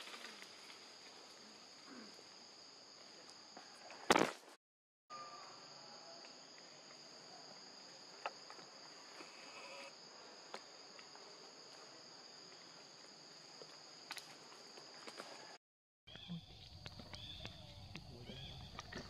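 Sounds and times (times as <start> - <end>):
high-pitched insect drone: 8.9 - 10.1.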